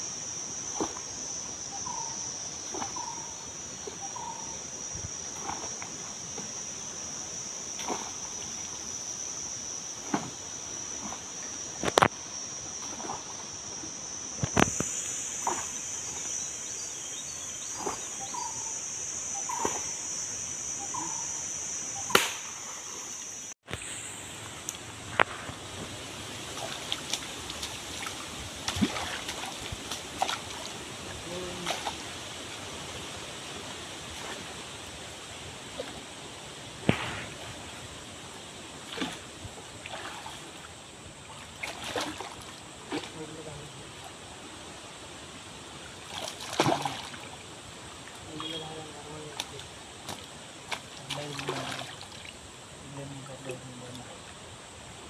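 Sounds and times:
insects droning: 0:00.0 - 0:55.0
splashes of wading in stream: 0:00.6 - 0:01.2, 0:02.6 - 0:18.8, 0:22.0 - 0:55.0
running water: 0:22.7 - 0:55.0
cast net sloshing and splashing: 0:26.5 - 0:30.6, 0:41.4 - 0:43.2, 0:46.0 - 0:47.2, 0:50.1 - 0:52.3.

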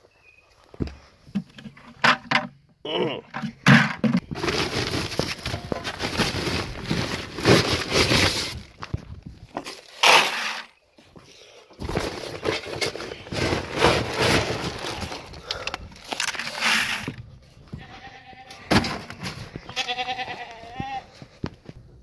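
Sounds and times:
scoop digging into feed pellets: 0:09.8 - 0:10.7
goat bleating: 0:17.7 - 0:18.7, 0:19.6 - 0:21.1.

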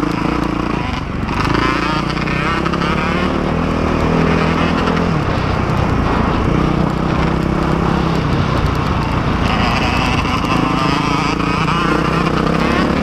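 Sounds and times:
dirt bike engine running: 0:00.0 - 0:13.0.

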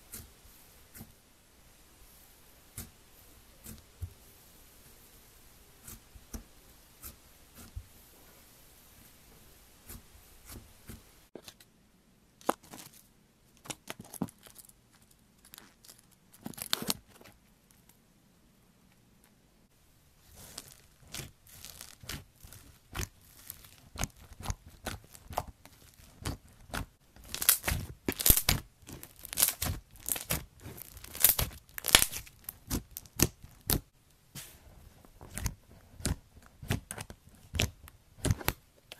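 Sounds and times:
slime squishing and popping: 0:20.3 - 0:33.8.

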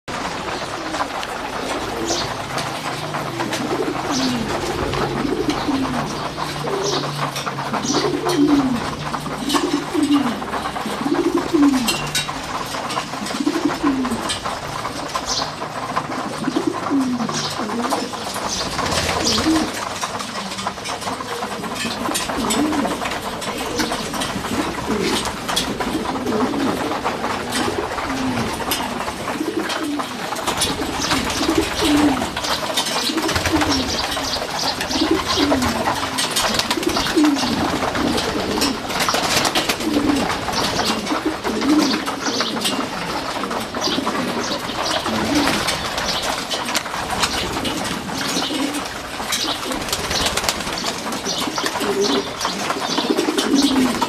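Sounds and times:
pigeons cooing: 0:00.1 - 0:54.0
pigeon wing flutters: 0:16.0 - 0:54.0.

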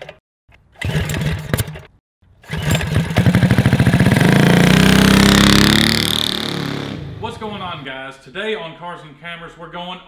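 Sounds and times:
engine revving to high drone: 0:03.2 - 0:07.9.

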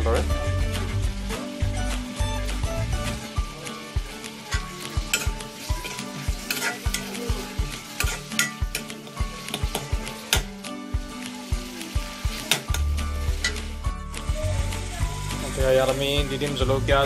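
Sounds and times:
frying food sizzling: 0:00.0 - 0:17.0
metal spoon scraping a wok: 0:03.2 - 0:13.8.

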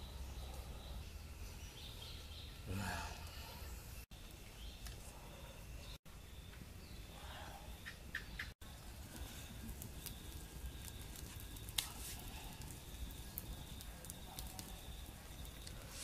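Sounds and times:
wood fire crackling and popping: 0:07.8 - 0:16.0.

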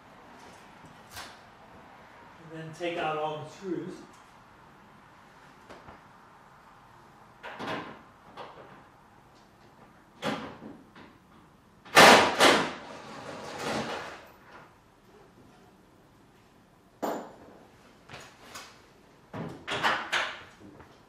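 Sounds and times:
knocks and clunks on metal frame: 0:19.3 - 0:20.6.

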